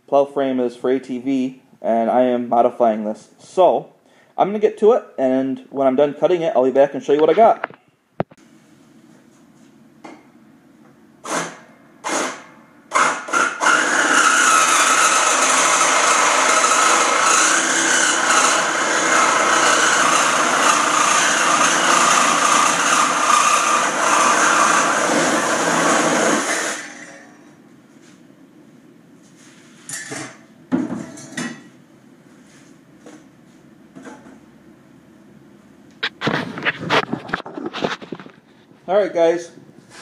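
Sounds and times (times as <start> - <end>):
reciprocating saw cutting steel: 11.3 - 27.3.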